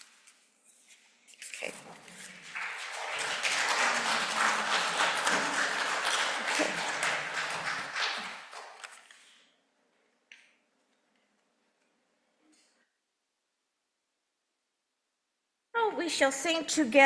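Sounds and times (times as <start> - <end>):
congregation applauding: 2.1 - 9.1.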